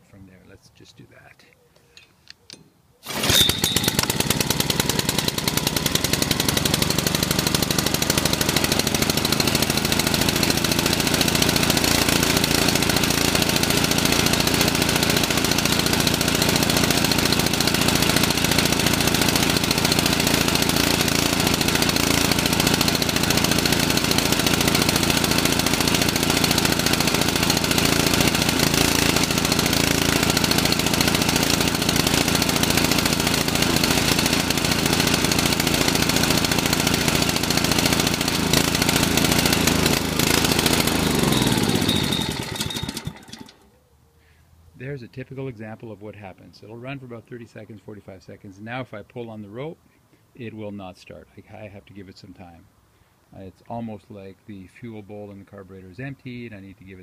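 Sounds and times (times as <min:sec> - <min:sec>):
small engine running: 0:03.0 - 0:43.7.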